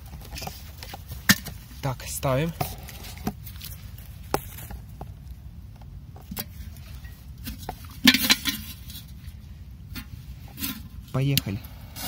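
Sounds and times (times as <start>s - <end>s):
taps and scrapes in dry soil: 0.0s - 12.0s
metal can clattering down: 8.0s - 8.8s.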